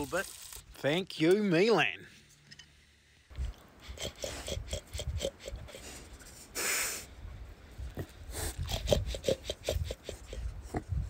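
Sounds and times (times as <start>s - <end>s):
pig snorting: 3.8s - 6.7s, 7.9s - 11.0s.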